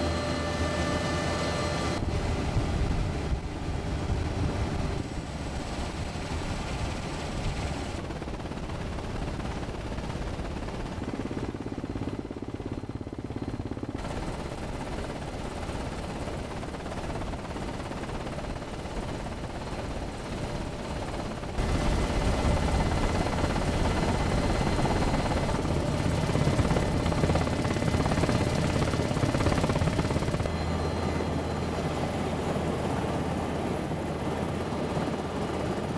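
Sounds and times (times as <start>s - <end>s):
helicopter rotor and turbines: 0.0s - 35.9s.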